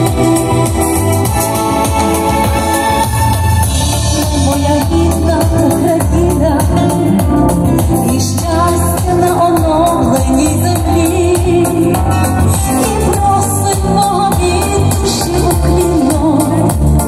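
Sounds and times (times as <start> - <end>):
backing track with bass and beat: 0.0 - 17.0
woman singing pop song: 2.8 - 17.0.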